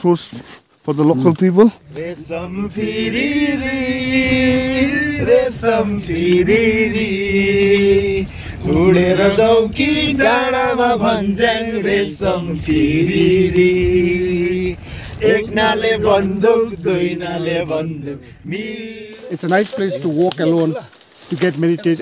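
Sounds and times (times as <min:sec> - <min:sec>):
man singing chant-like phrases: 0:01.8 - 0:22.0.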